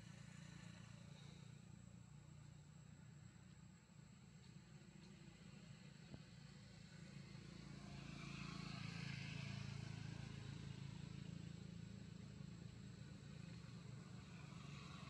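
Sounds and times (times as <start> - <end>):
faint low hum with hiss: 0.0 - 8.0.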